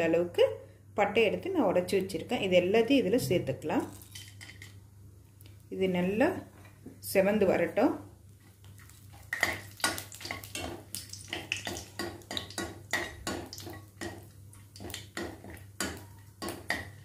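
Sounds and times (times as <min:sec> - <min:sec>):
spices sizzling in oil: 0:07.1 - 0:17.0.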